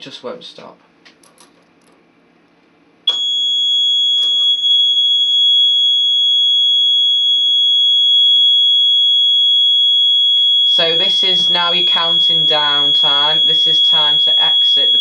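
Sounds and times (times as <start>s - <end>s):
alarm panel buzzer: 3.1s - 15.0s.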